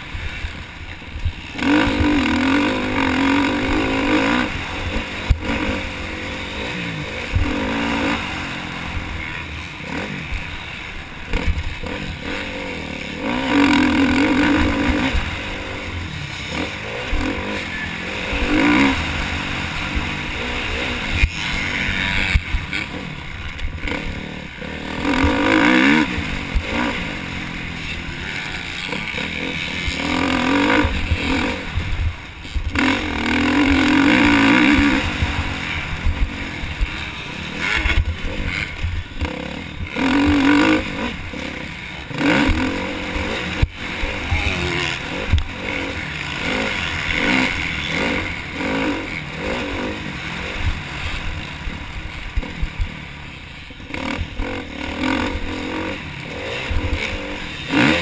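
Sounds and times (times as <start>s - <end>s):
motorbike engine revving: 0.0s - 58.0s.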